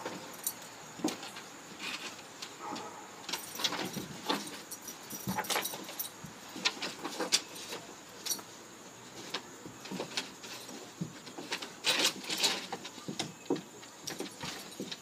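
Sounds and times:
collar jingling: 0:00.0 - 0:08.6, 0:09.2 - 0:15.0
claws scraping wooden boards: 0:00.0 - 0:15.0
fabric rustling and scrabbling: 0:01.0 - 0:08.3.

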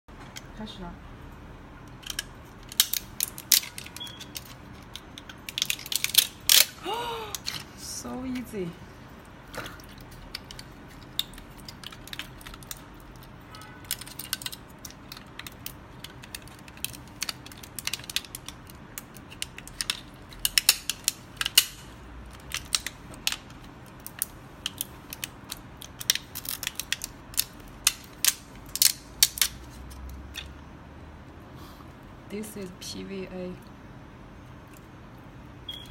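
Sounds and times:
plastic support cracking and snapping: 0:01.9 - 0:07.6, 0:09.5 - 0:30.5.

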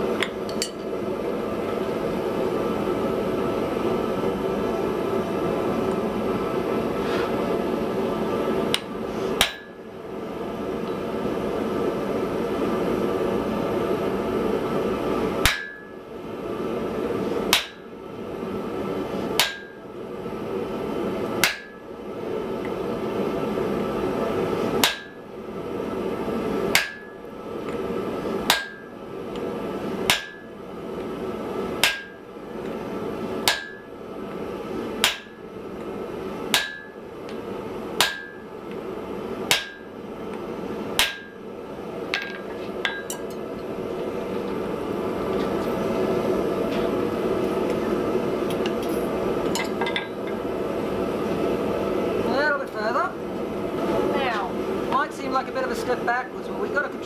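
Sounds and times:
hammer clanking on anvil: 0:38.0 - 0:38.4.

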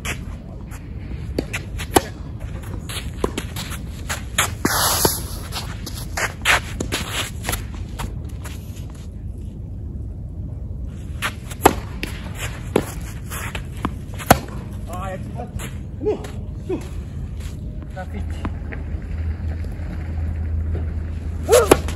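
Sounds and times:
low rumble: 0:00.0 - 0:21.9
racket hitting tennis ball: 0:01.3 - 0:07.7, 0:11.2 - 0:14.8, 0:21.4 - 0:21.9
tennis ball bouncing on court: 0:21.5 - 0:21.9.

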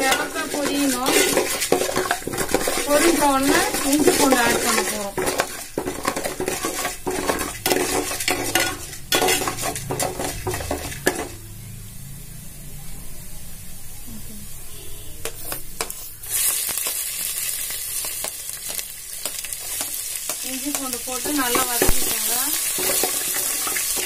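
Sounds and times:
ladle scraping metal pot: 0:00.0 - 0:11.4, 0:21.2 - 0:24.0
food sizzling in hot oil: 0:00.0 - 0:24.0.

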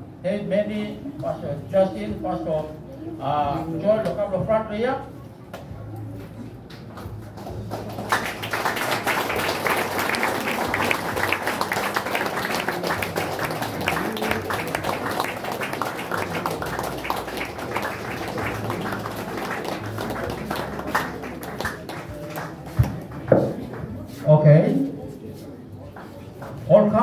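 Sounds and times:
crowd applauding: 0:07.3 - 0:24.0.

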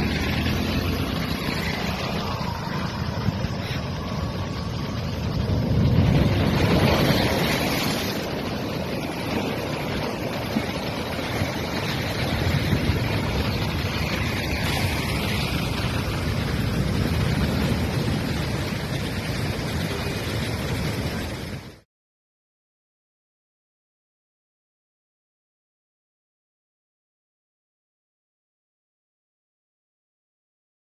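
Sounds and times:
vehicles driving through water: 0:00.0 - 0:21.8
wind buffeting microphone: 0:01.3 - 0:21.8
surf breaking on seawall: 0:05.6 - 0:21.6.

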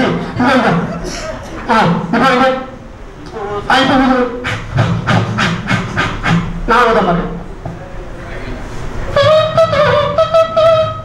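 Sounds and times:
person vocally mimicking wind instrument: 0:03.3 - 0:07.2, 0:09.1 - 0:11.0.

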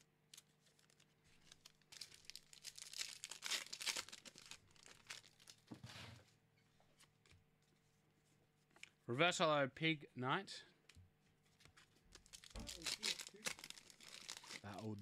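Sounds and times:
foil wrapper crinkling and tearing: 0:00.3 - 0:05.6, 0:12.1 - 0:15.0.

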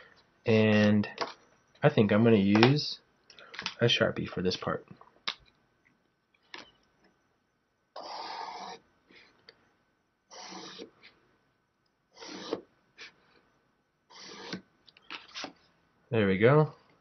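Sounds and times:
marker scratching on paper: 0:08.0 - 0:08.8, 0:10.3 - 0:10.9, 0:12.2 - 0:12.6, 0:14.1 - 0:14.6.

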